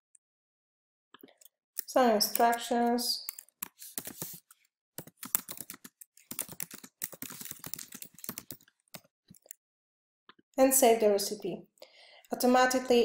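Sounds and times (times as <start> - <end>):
computer keyboard typing: 1.9 - 9.6.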